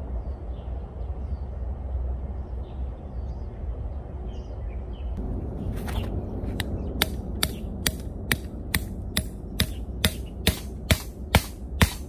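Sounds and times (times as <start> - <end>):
hammer striking steel stake: 6.6 - 12.0.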